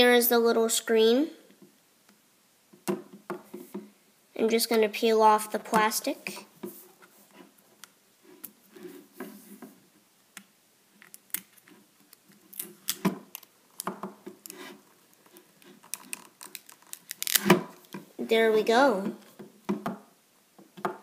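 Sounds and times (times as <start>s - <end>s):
plastic film rustling: 14.4s - 18.0s.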